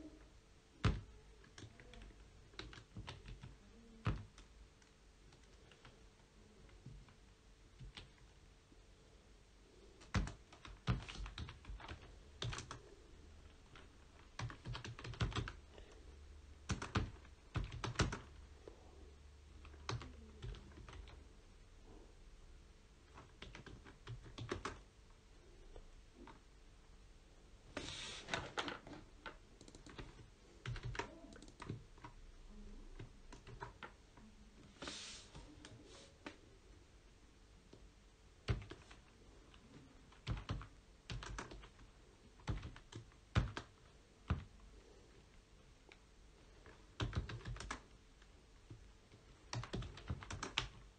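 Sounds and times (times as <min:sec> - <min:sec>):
typing on keyboard: 0:00.8 - 0:06.0, 0:07.8 - 0:08.3, 0:10.0 - 0:15.7, 0:16.6 - 0:18.4, 0:19.6 - 0:21.2, 0:23.1 - 0:24.8, 0:28.4 - 0:32.2, 0:33.0 - 0:34.0, 0:38.5 - 0:39.1, 0:40.1 - 0:44.5, 0:46.6 - 0:47.9, 0:48.7 - 0:50.9.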